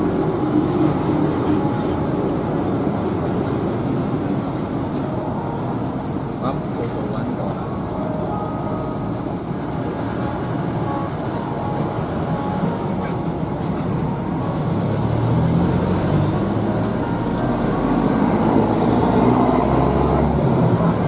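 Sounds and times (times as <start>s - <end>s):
street traffic noise: 0.0s - 21.0s.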